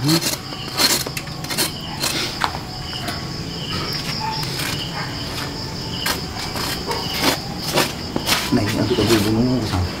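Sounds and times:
insects chirring: 0.0 - 10.0.

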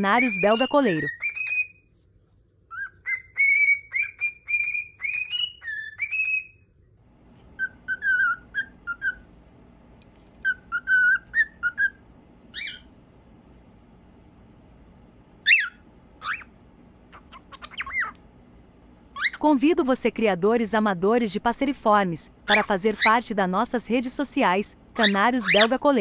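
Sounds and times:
cockatiels whistling: 0.0 - 1.8, 2.7 - 6.6, 7.6 - 9.2, 10.4 - 12.9, 15.4 - 16.5, 17.1 - 18.2.

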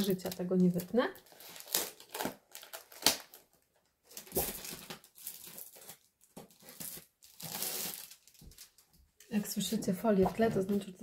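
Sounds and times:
plastic film crinkling: 0.0 - 9.0.

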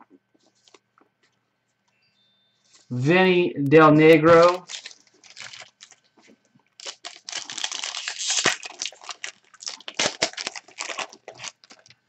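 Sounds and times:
foil wrapper crinkling and tearing: 4.3 - 6.1, 6.8 - 12.0.

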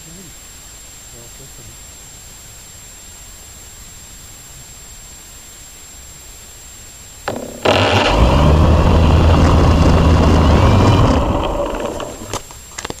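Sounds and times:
motor humming: 7.3 - 12.4.

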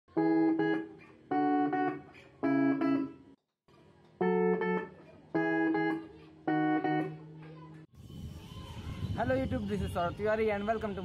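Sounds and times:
electric guitar chords strummed: 0.1 - 3.3, 4.2 - 7.4.

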